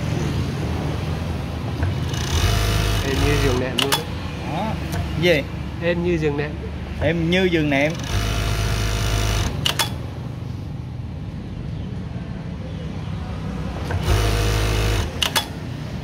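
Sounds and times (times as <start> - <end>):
motor hum: 1.8 - 4.0, 7.9 - 10.0, 13.9 - 15.5
sewing machine stitching: 1.8 - 4.2, 7.9 - 10.0, 13.9 - 15.6.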